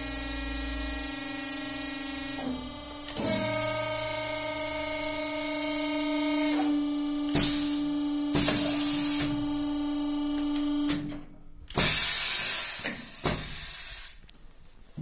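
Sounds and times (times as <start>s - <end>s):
hydraulic pump humming with whine: 0.0s - 14.1s.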